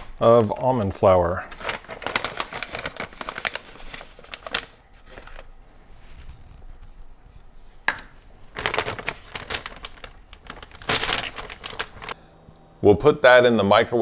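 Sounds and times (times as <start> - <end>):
plastic bag crinkling: 1.3 - 7.2, 7.9 - 12.2.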